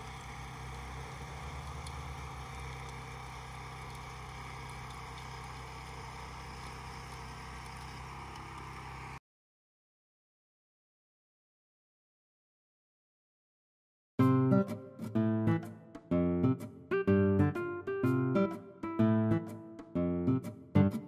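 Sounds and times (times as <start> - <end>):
small petrol engine humming: 0.0 - 9.2.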